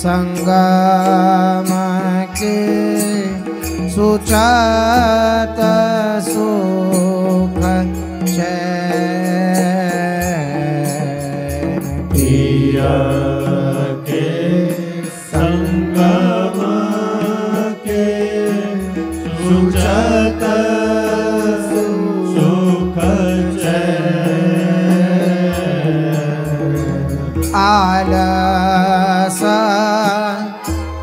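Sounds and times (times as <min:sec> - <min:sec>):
devotional chant singing: 0:00.0 - 0:31.0
sustained drone: 0:12.2 - 0:27.6.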